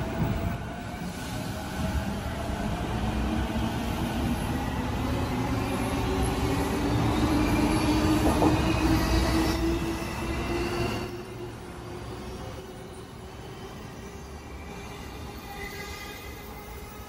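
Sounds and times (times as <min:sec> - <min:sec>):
wheels rumbling on rail: 0:07.7 - 0:09.8.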